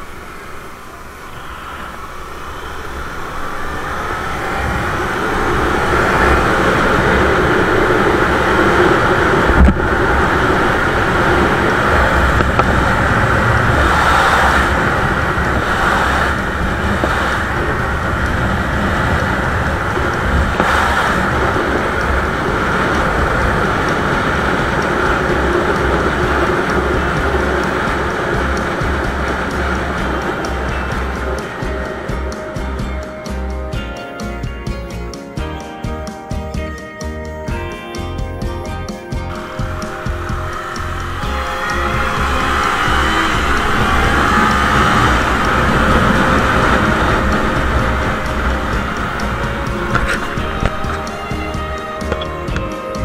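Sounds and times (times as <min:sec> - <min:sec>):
wind rushing over microphone: 0:00.0 - 0:35.6, 0:37.5 - 0:53.0
motorcycle engine pulling hard: 0:02.6 - 0:33.9, 0:39.1 - 0:53.0.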